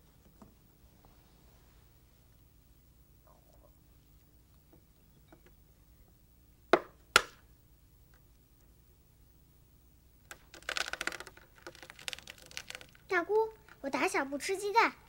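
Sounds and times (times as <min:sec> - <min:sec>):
egg knocking on wooden bench: 0:06.7 - 0:07.3.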